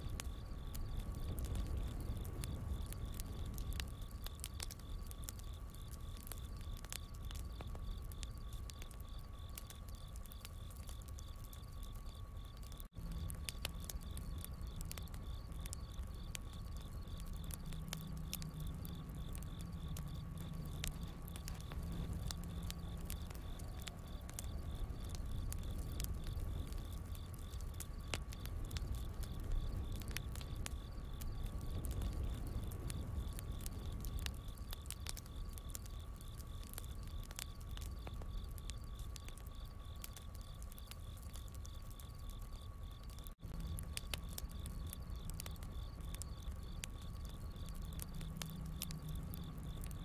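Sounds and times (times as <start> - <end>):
campfire crackling and popping: 0.0 - 50.0
crickets chirping: 0.0 - 50.0
low rumble: 13.0 - 35.0.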